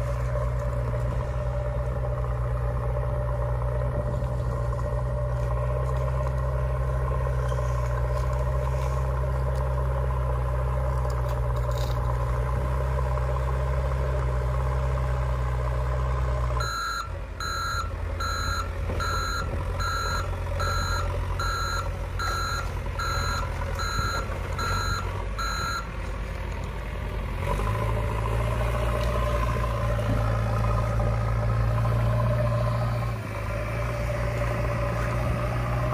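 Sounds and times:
reversing alarm beeps: 16.6s - 25.9s.

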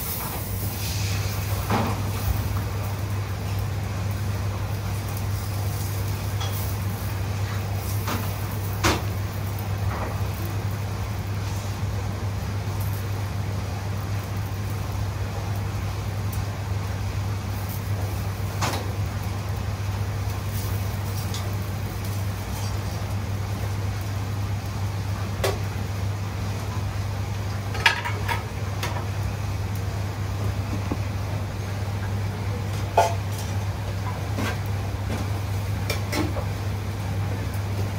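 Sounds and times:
utensils clinking on pans: 27.8s - 28.5s, 32.9s - 33.6s.

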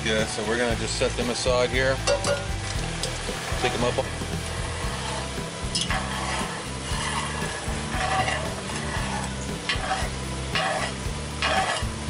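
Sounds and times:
drippings sizzling and bubbling: 0.0s - 12.0s
metal spoon scraping pot: 3.9s - 12.0s.

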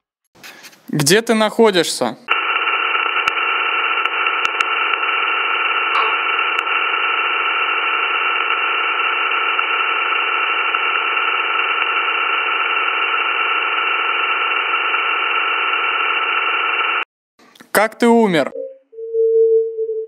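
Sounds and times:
radio static hiss: 2.3s - 17.0s.

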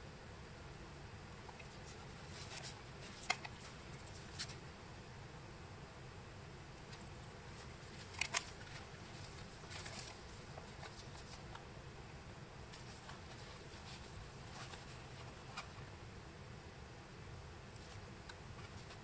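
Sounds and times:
soft rustle: 1.5s - 4.8s, 6.8s - 11.6s, 12.6s - 15.9s, 17.7s - 19.0s.

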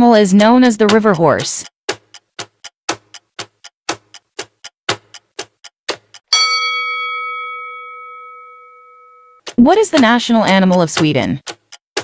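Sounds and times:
clock ticking: 0.0s - 8.8s, 9.4s - 12.0s
bell ding: 6.3s - 9.4s.

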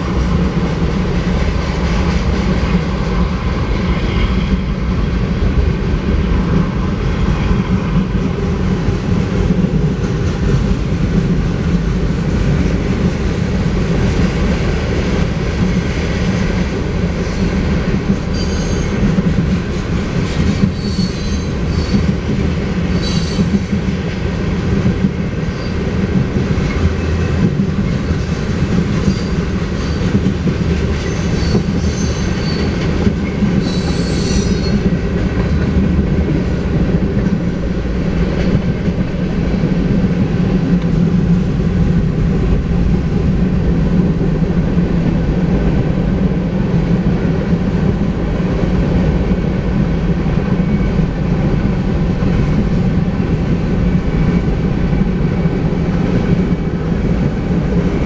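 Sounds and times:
train wheels rumbling on rail: 0.0s - 58.0s
high-pitched wheel squeals: 18.3s - 19.0s, 20.7s - 22.0s, 33.6s - 34.8s.

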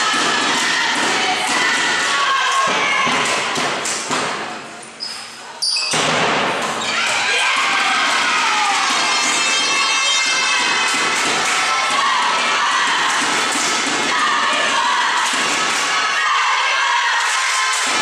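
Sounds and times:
people shouting: 0.0s - 3.7s, 6.8s - 18.0s
crowd cheering: 6.7s - 18.0s.

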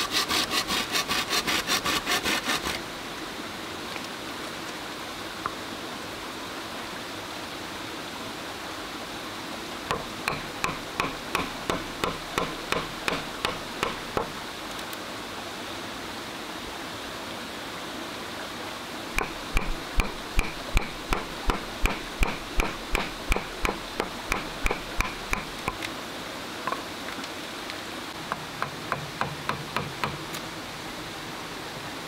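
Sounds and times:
stream running: 1.4s - 32.0s
wooden baton knocking on knife: 19.2s - 25.8s.

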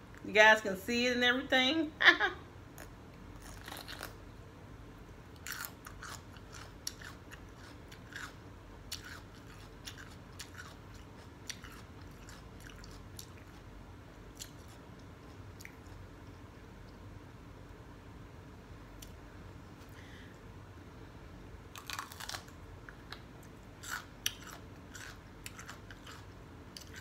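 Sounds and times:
person chewing crunchy pepper: 2.7s - 4.2s, 5.3s - 16.4s, 21.7s - 27.0s.

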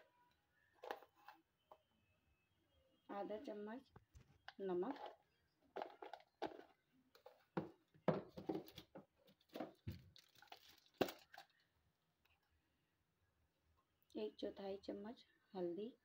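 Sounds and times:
kitchen items rustling and knocking: 0.8s - 1.5s, 4.1s - 11.6s.

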